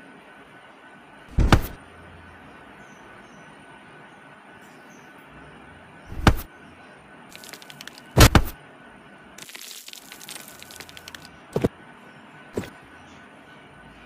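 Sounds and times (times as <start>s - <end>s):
sharp loud thumps: 1.3s - 1.8s, 6.1s - 6.5s, 8.2s - 8.6s
fine crackling: 7.3s - 8.6s, 9.4s - 11.7s.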